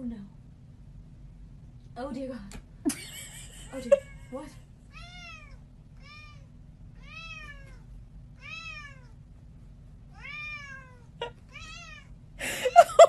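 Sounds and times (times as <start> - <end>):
cat meowing: 4.9 - 9.2, 10.1 - 12.1.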